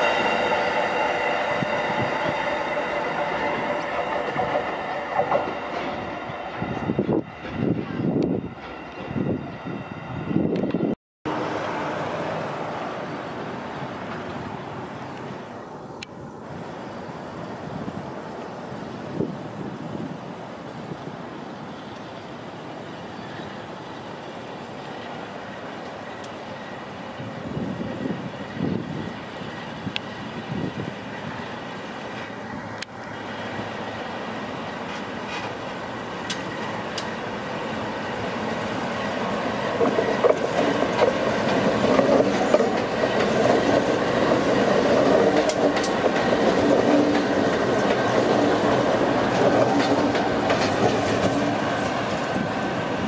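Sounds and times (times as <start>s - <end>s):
locomotive engines rumbling: 0.0s - 19.2s
freight locomotives passing: 0.0s - 53.0s
wheels rumbling on rail: 0.0s - 53.0s.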